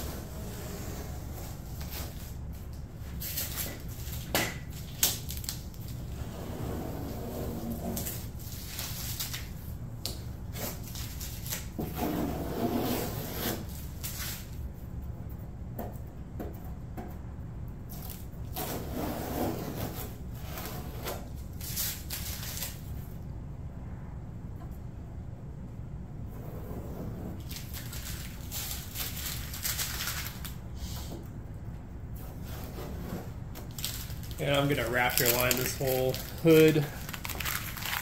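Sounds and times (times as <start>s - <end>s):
tape peeling and crinkling: 0.2s - 6.2s, 7.0s - 14.6s, 17.9s - 23.1s, 27.4s - 30.6s, 33.5s - 38.0s
low hum: 23.0s - 28.0s.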